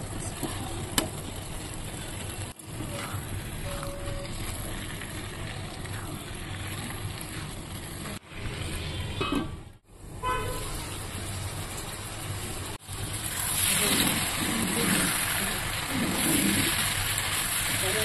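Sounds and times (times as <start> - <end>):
food cooking on stove: 0.0 - 18.0.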